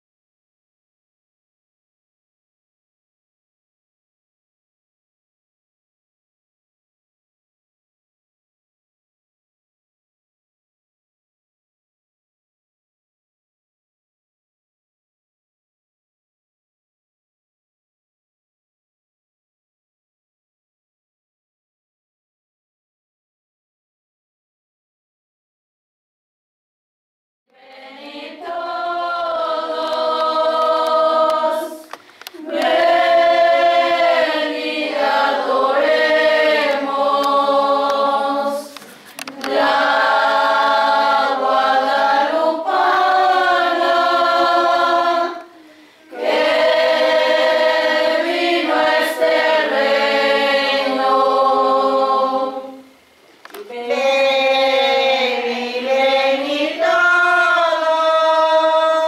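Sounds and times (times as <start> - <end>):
choir singing a hymn: 27.5 - 52.9, 53.6 - 59.0.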